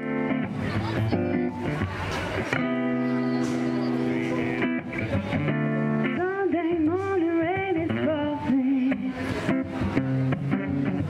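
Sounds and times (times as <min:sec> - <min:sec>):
acoustic guitar strummed: 0:00.0 - 0:11.0
person singing: 0:04.2 - 0:09.4.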